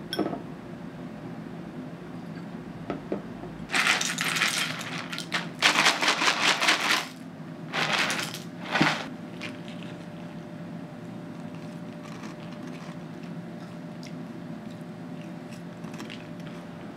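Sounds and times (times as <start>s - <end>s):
cereal pouring into a bowl: 3.7s - 9.8s.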